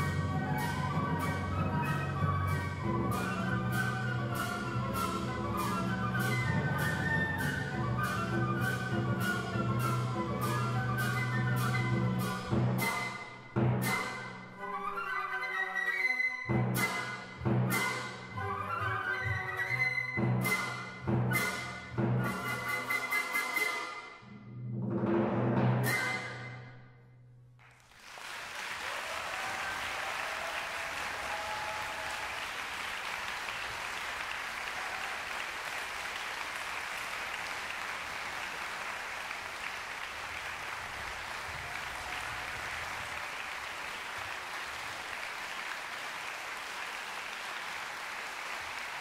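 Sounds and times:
audience applause: 0:27.6 - 0:49.0.

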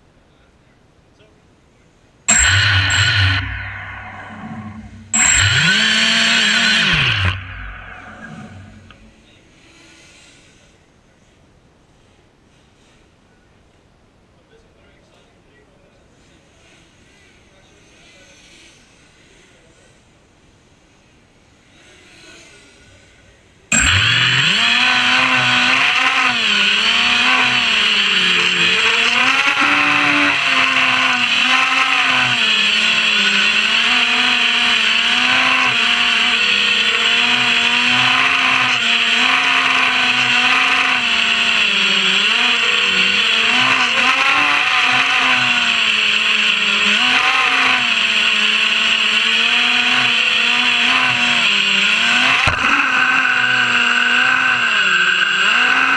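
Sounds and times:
quadcopter motors whining: 0:02.3 - 0:09.3, 0:23.7 - 0:55.9.

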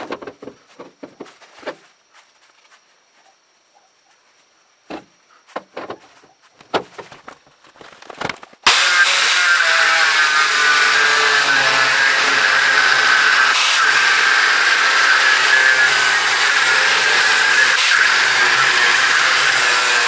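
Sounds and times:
angle grinder cutting steel: 0:08.7 - 0:20.0.

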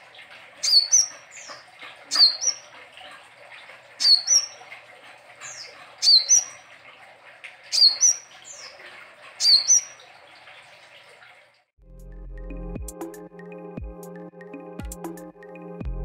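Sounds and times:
sunbird singing: 0:00.6 - 0:02.7, 0:04.0 - 0:04.6, 0:05.4 - 0:06.6, 0:07.8 - 0:08.8, 0:09.4 - 0:10.0.

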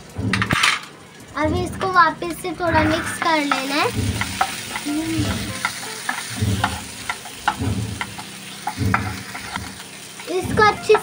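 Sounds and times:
onions sizzling in oil: 0:02.1 - 0:11.0
spatula scraping frying pan: 0:02.6 - 0:11.0.

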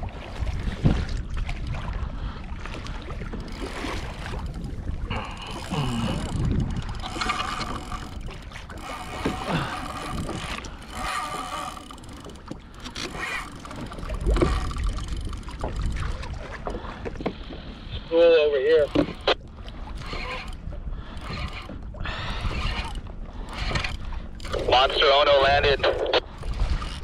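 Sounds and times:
wind on microphone: 0:00.0 - 0:12.2, 0:18.8 - 0:24.7, 0:25.4 - 0:27.0
water lapping against hull: 0:00.0 - 0:27.0
high whining squeaks: 0:20.0 - 0:20.6.

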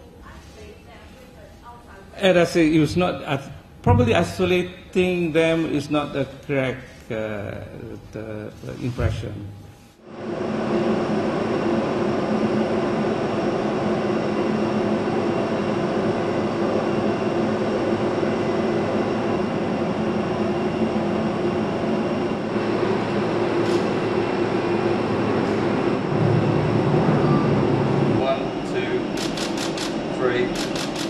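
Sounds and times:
jet engine high whine: 0:02.5 - 0:31.0
jet engine rumble: 0:08.6 - 0:31.0.

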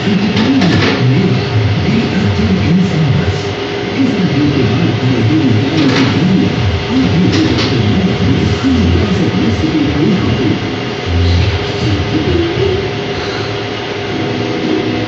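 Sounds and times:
music playing: 0:11.0 - 0:13.5, 0:14.1 - 0:15.0.

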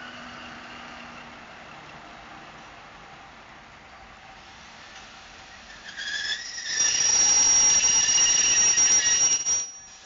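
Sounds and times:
train wheels squealing: 0:05.5 - 0:10.0.

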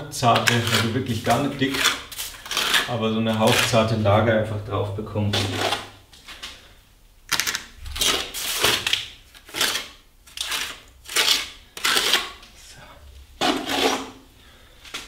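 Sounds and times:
trowel scraping plaster: 0:00.2 - 0:04.0, 0:05.4 - 0:05.9, 0:07.8 - 0:12.4, 0:13.4 - 0:14.2.

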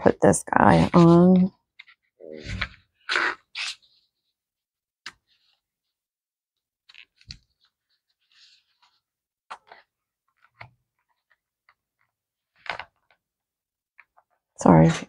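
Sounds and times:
soft paper rustle: 0:05.1 - 0:05.7, 0:06.8 - 0:13.2.

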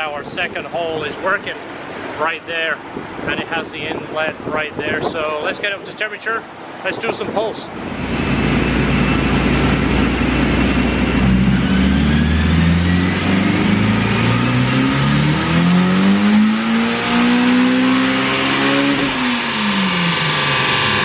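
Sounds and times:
thin turbo whine: 0:06.6 - 0:21.0
car engine revving under load: 0:07.7 - 0:21.0.

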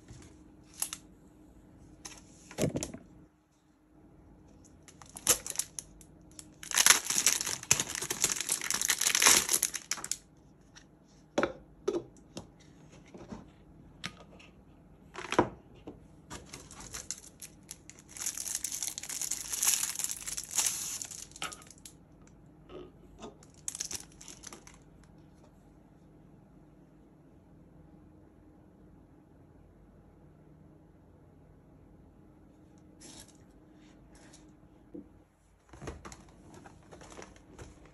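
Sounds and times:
packaging crinkling and tearing: 0:04.8 - 0:10.3, 0:16.3 - 0:22.0, 0:23.4 - 0:24.9.

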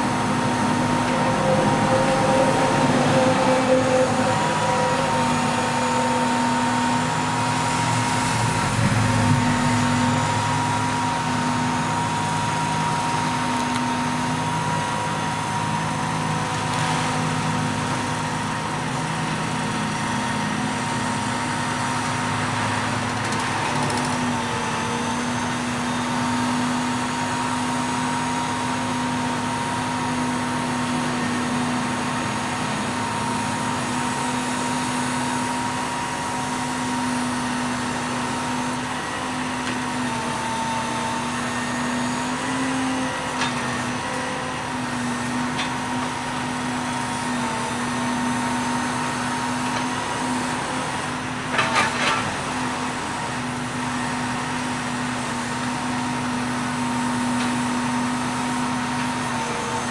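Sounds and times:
truck engine running: 0:00.0 - 0:25.6
hydraulic whine: 0:00.0 - 0:27.3.

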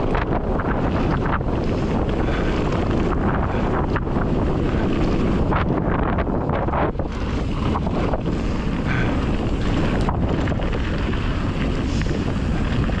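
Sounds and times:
bike rattling: 0:00.0 - 0:13.0
tyres rumbling on dirt trail: 0:00.0 - 0:13.0
wind buffeting microphone: 0:00.0 - 0:13.0.

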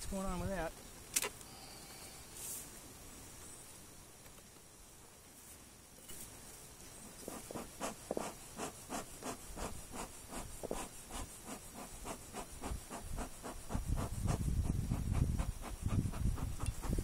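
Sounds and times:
tool scraping hive frames: 0:07.1 - 0:17.0.

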